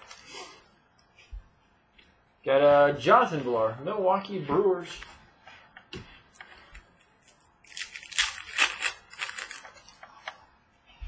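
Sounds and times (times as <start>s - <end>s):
cards rustling and sliding: 5.9s - 10.4s.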